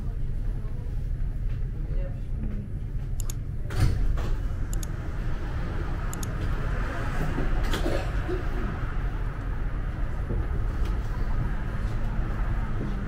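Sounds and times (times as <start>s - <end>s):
road traffic rumble: 2.6s - 13.0s.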